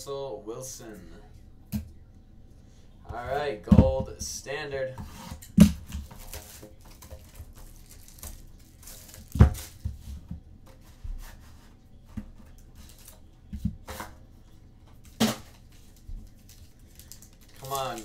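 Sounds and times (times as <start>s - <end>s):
cards rustling and knocking: 5.0s - 14.2s, 14.9s - 18.0s
card packaging tearing: 5.8s - 9.8s, 15.0s - 18.0s.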